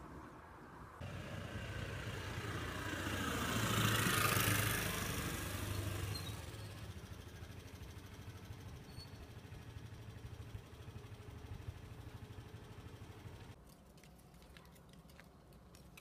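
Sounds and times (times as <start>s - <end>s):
low steady engine hum: 1.0s - 13.6s
motor vehicle passing: 1.0s - 13.6s.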